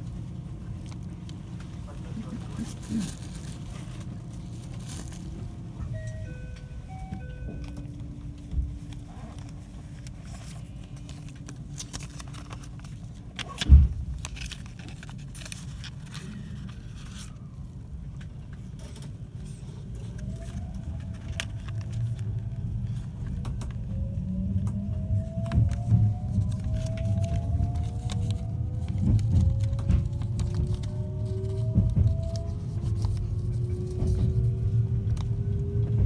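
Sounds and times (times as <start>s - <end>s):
electric train rumbling: 0.0s - 36.0s
traction motors whining: 16.0s - 36.0s.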